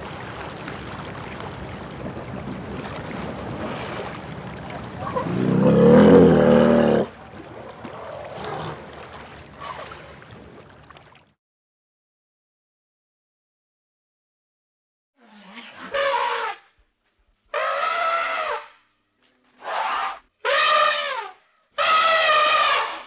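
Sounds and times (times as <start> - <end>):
elephant call: 5.0 - 7.2, 17.5 - 18.7, 19.5 - 23.0.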